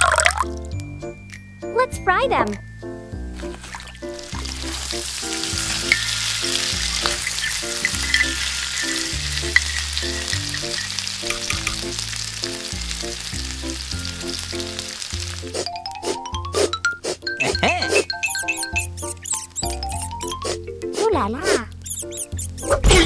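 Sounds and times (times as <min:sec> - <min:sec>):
background music: 0:00.0 - 0:23.0
oil sizzling: 0:03.2 - 0:20.3.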